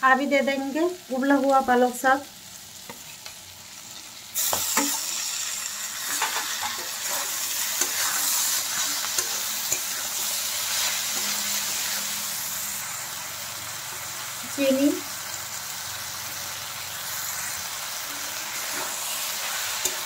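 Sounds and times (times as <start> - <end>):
vegetables sizzling in oil: 0.0 - 20.0
steel spatula scraping pan: 6.0 - 12.4, 18.1 - 20.0.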